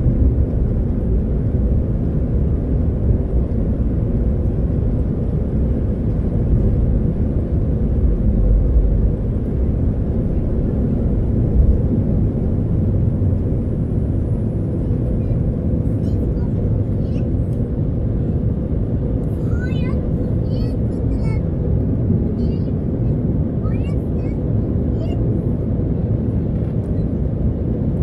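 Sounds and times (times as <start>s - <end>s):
jet engines roaring: 0.0s - 28.0s
wheels rumbling on runway: 0.0s - 28.0s.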